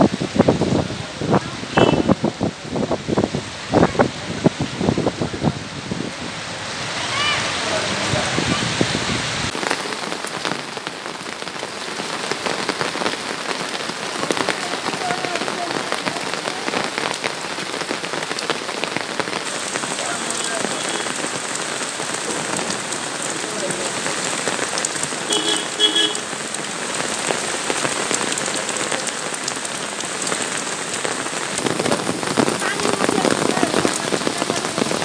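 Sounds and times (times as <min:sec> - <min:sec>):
hailstones and rain pelting ground: 0:09.5 - 0:35.0.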